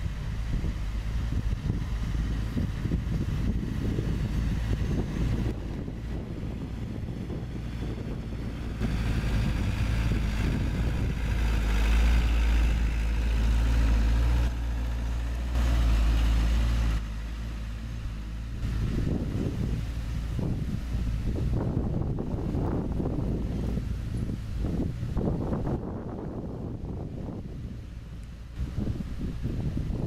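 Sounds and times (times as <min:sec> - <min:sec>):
diesel truck engines rumbling: 0:00.0 - 0:30.0
wind noise on microphone: 0:00.0 - 0:30.0.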